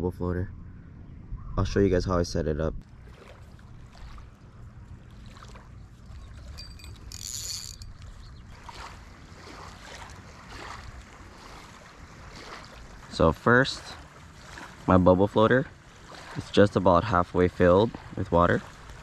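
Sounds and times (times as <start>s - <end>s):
wind on microphone: 0.0s - 2.9s
fishing rod handling rustles: 5.4s - 10.6s.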